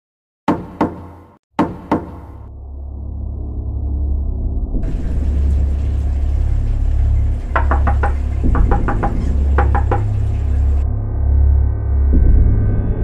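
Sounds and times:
knocking on a door: 0:00.5 - 0:02.2, 0:07.5 - 0:10.8
low drone: 0:02.4 - 0:13.0.

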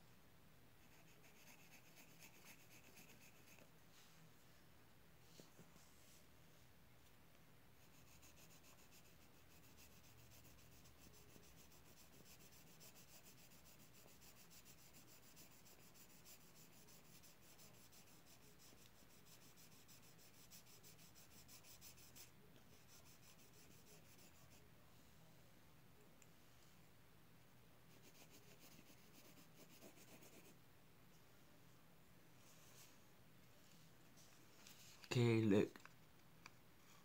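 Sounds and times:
pencil scratching on paper: 0:00.8 - 0:03.7, 0:07.8 - 0:24.6, 0:27.9 - 0:30.6.

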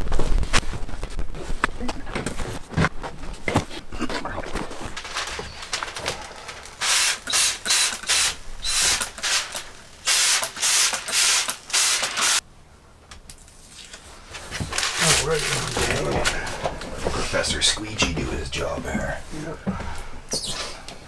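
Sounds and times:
spray bottle spritzing: 0:06.8 - 0:12.4.

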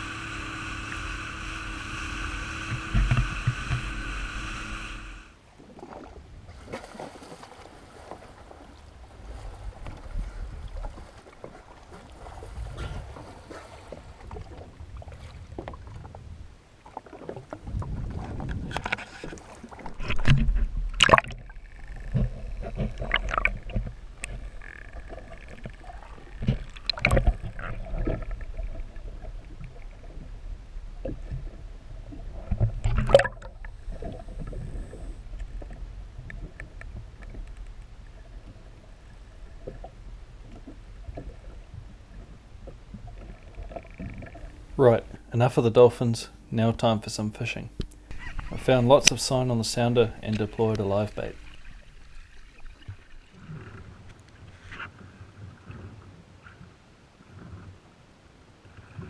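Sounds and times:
low rumble: 0:00.0 - 0:05.4
sea water sloshing and splashing: 0:05.4 - 0:45.3, 0:47.8 - 0:57.9.

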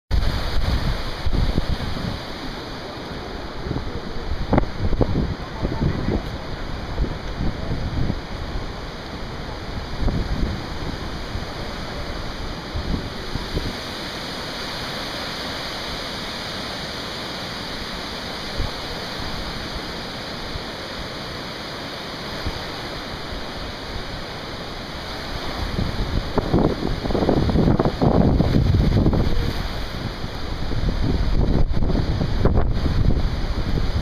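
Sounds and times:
wind buffeting microphone: 0:00.1 - 0:14.9, 0:25.1 - 0:34.0
floodwater rushing: 0:00.1 - 0:34.0.

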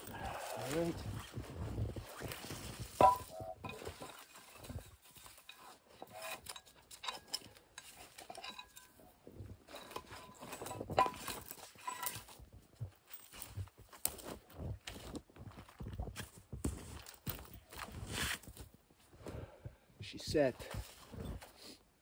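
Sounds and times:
metal trap clinking and clanking: 0:03.0 - 0:04.8, 0:05.4 - 0:09.0, 0:09.7 - 0:12.3.

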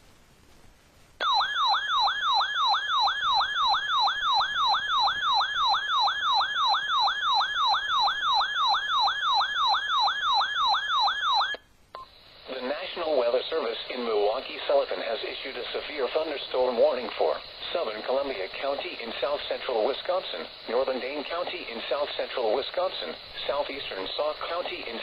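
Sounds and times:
siren alarm wailing: 0:01.2 - 0:11.6.

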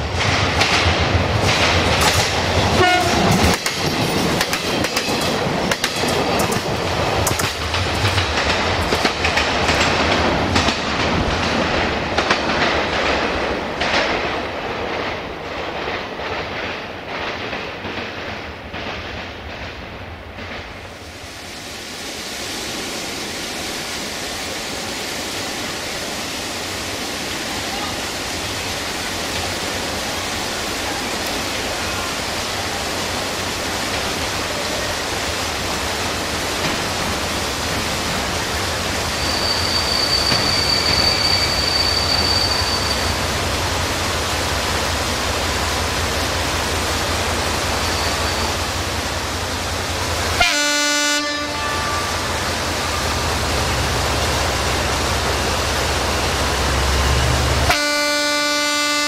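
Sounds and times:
diesel locomotive engine: 0:00.0 - 0:59.0
train wheels on rails: 0:00.0 - 0:59.0
train horn blast: 0:02.7 - 0:03.4, 0:50.4 - 0:53.1, 0:57.7 - 0:59.0.

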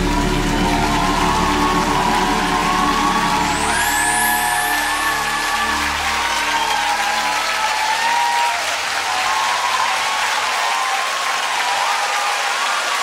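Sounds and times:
audience applauding and cheering: 0:00.0 - 0:13.0.

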